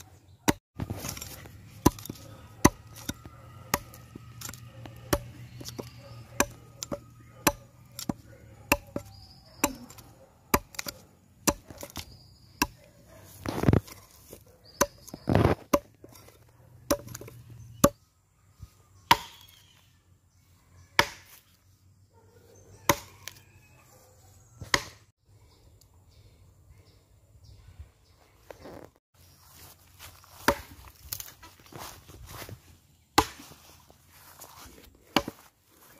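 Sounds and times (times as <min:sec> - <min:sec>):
adze chopping wood: 0:00.5 - 0:14.0, 0:14.8 - 0:18.0, 0:19.1 - 0:19.6, 0:21.0 - 0:21.4, 0:22.9 - 0:23.1, 0:24.6 - 0:25.1, 0:30.3 - 0:31.3, 0:33.2 - 0:33.6, 0:35.0 - 0:35.5.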